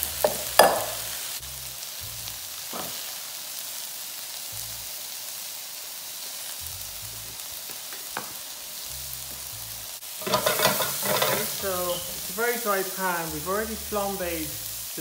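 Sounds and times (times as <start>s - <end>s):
vegetables sizzling in frying pan: 0.0s - 15.0s.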